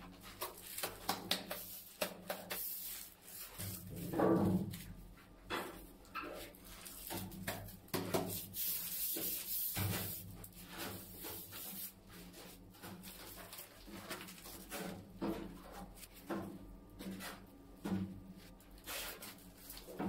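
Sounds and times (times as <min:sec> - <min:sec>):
tiles scuffing in adhesive: 0:06.6 - 0:16.2, 0:18.7 - 0:20.0.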